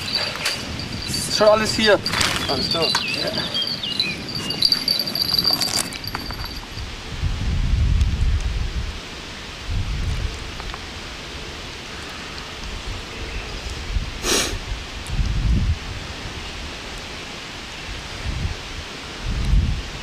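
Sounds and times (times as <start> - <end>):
wind buffeting microphone: 0.0 - 11.8, 12.5 - 16.9, 17.9 - 20.0
steady outdoor hiss: 0.0 - 20.0
short sharp hiss: 14.2 - 14.6.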